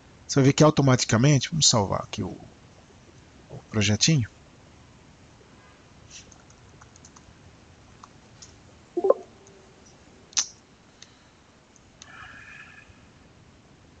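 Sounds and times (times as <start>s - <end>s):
computer mouse clicks: 6.2s - 7.3s.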